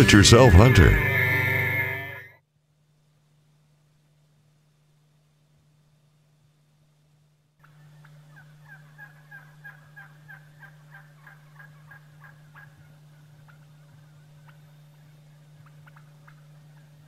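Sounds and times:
low hum: 0.0 - 2.3
wild turkey calling: 7.6 - 17.0.

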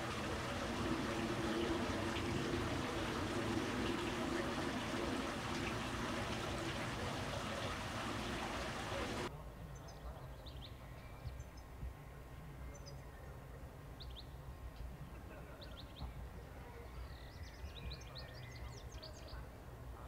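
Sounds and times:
fountain water splashing: 0.0 - 9.3.

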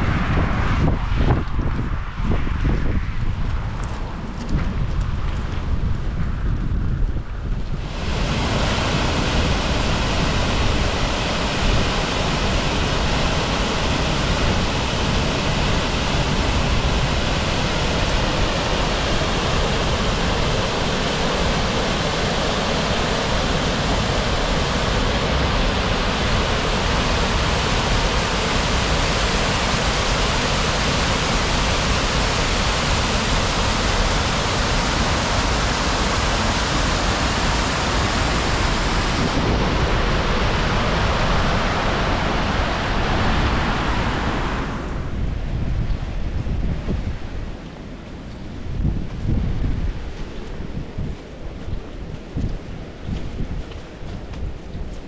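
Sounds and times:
wind on microphone: 0.0 - 55.0
floodwater rushing over ledge: 7.8 - 45.0.

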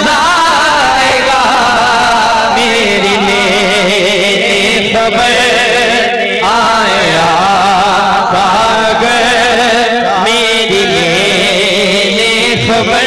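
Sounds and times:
man singing melismatic phrases: 0.0 - 13.0
held drone note: 12.4 - 13.0.

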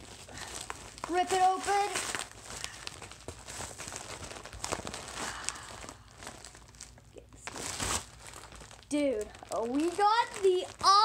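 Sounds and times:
paper mailer ripping and crinkling: 0.0 - 11.0.

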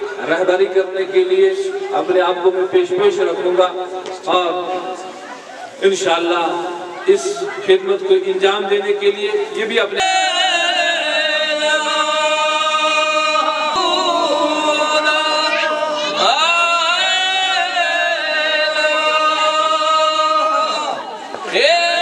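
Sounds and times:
man chanting into a microphone: 0.0 - 5.1, 5.8 - 22.0.

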